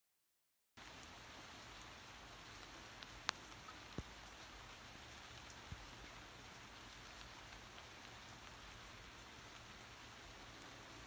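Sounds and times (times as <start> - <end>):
rain falling: 0.8 - 11.0.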